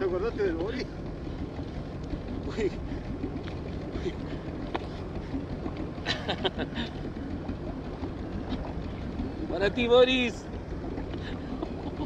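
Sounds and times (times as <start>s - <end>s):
sea noise: 0.0s - 12.0s
faint clicks: 2.0s - 2.2s.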